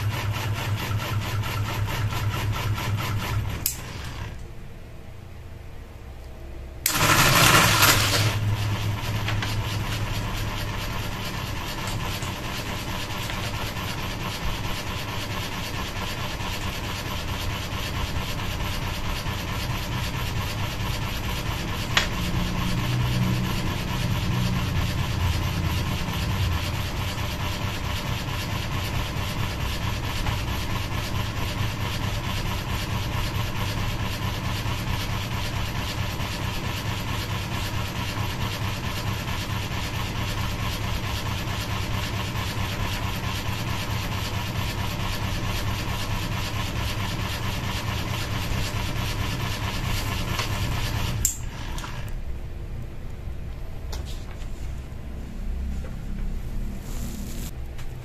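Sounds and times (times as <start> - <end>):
fan motor hum: 0.0 - 58.0
fan blades slapping paper: 6.9 - 52.1.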